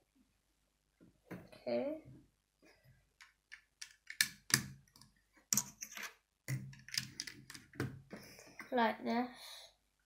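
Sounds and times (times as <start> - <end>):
plastic bricks clicking: 3.2 - 7.8.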